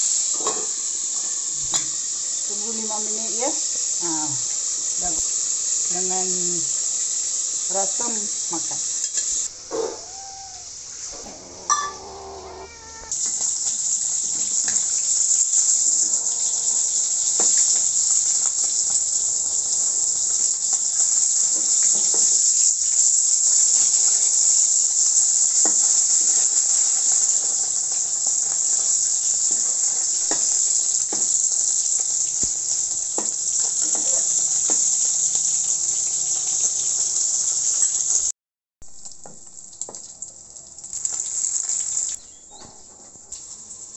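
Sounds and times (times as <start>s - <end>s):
fish frying in hot oil: 0.0s - 11.9s, 12.8s - 43.9s
kitten meowing: 9.7s - 13.2s.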